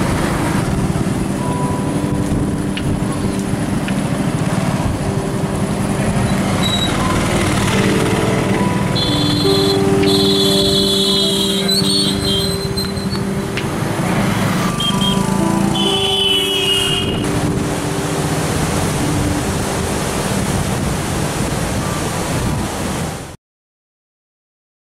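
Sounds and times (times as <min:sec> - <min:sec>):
road traffic noise: 0:00.0 - 0:23.3
steady horn tones: 0:04.8 - 0:19.3.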